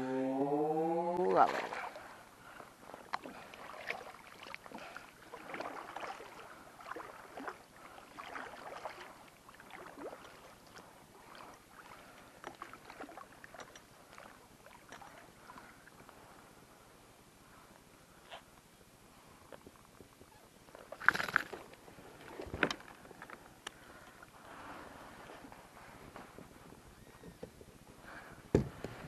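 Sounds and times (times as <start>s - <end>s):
water splashing beside kayak: 1.2s - 16.0s.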